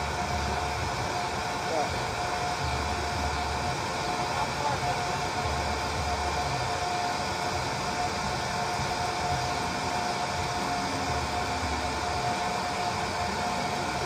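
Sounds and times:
small fan motor whirring: 0.0s - 14.0s.

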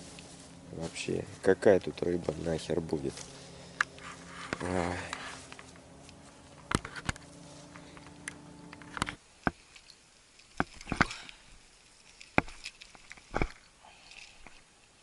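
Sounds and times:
low motor-like hum: 0.0s - 9.4s
footsteps on sandy grass: 0.0s - 9.7s.

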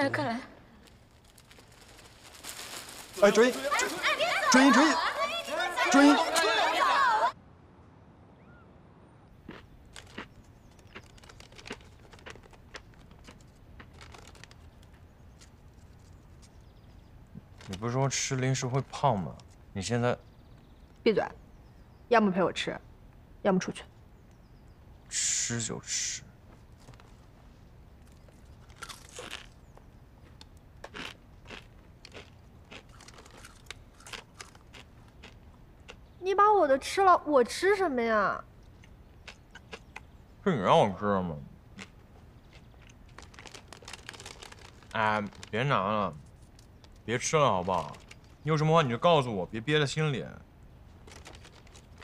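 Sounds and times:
crunchy chips being chewed: 0.8s - 5.3s, 9.4s - 16.7s, 28.0s - 36.0s, 38.7s - 40.1s, 41.8s - 45.6s, 46.2s - 48.4s, 50.9s - 52.0s.

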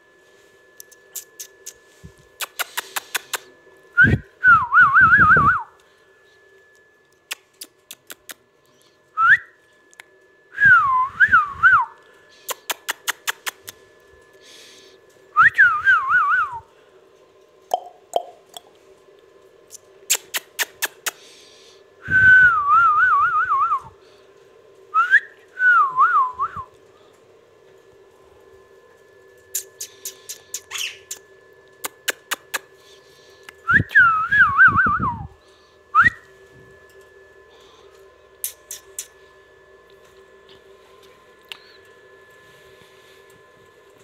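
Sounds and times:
parakeet whistling: 29.6s - 31.2s.

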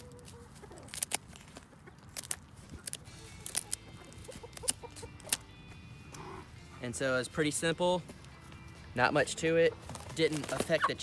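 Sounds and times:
scissors snipping feathers: 0.2s - 5.5s.

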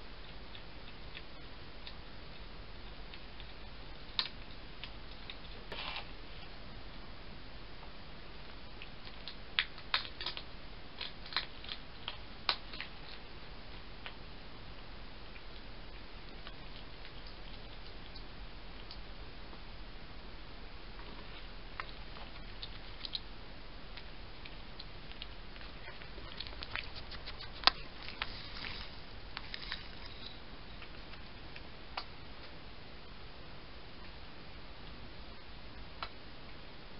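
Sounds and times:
hedgehog crunching dry food: 8.9s - 14.2s, 23.9s - 32.1s.

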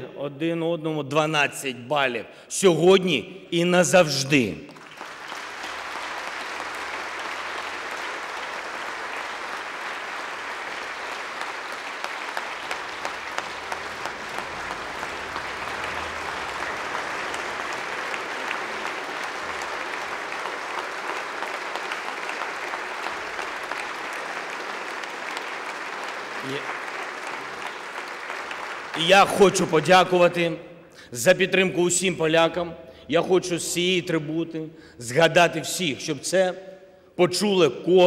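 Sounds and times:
large audience applauding: 4.7s - 30.3s.

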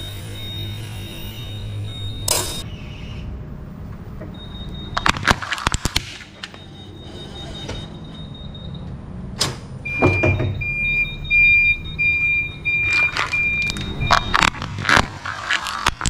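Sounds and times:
electronic warning beeps: 0.0s - 2.7s, 4.3s - 5.2s, 6.3s - 8.9s, 9.8s - 14.6s
forklift running: 0.0s - 2.8s, 6.3s - 16.0s.

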